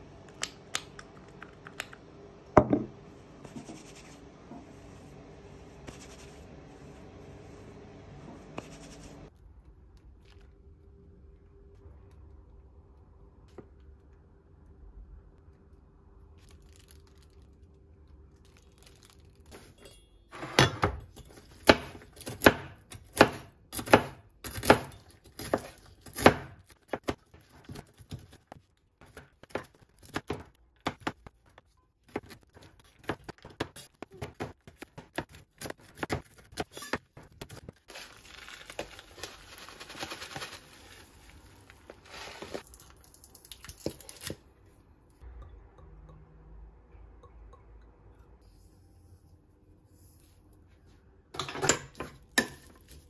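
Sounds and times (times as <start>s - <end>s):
rustling: 37.8s - 43.0s.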